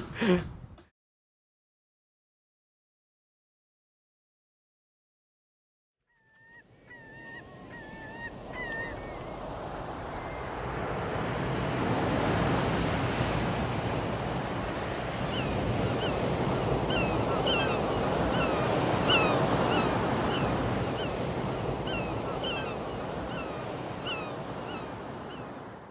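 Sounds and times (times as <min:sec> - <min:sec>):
sea waves washing: 0:06.7 - 0:25.9.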